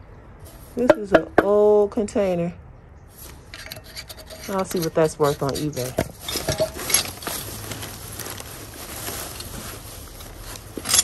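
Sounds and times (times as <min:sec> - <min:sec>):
objects knocking: 0:00.8 - 0:01.6, 0:03.5 - 0:07.5
plastic bag rustling: 0:03.1 - 0:11.0.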